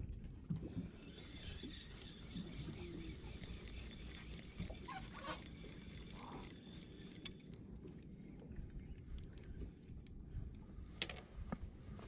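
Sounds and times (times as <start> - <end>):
wind and water rumble: 0.0 - 12.0
wavering high whine: 1.0 - 7.6.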